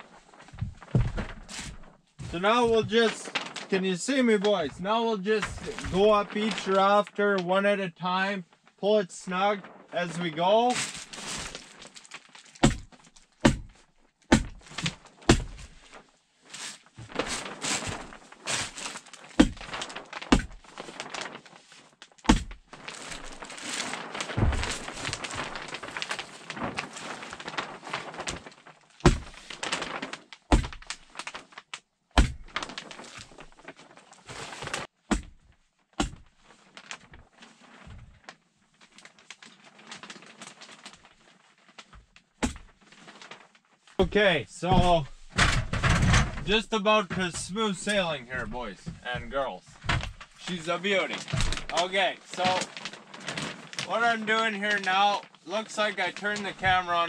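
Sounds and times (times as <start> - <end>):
plastic sheeting rustling: 0.0 - 57.0
sharp knocks: 12.6 - 14.7, 15.3 - 15.6, 19.4 - 20.6, 22.3 - 22.6, 36.0 - 36.3.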